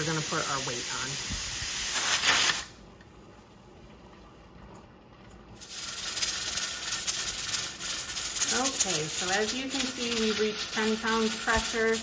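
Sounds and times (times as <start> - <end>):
steam hissing from vent pipe: 0.0 - 2.7, 5.6 - 12.0.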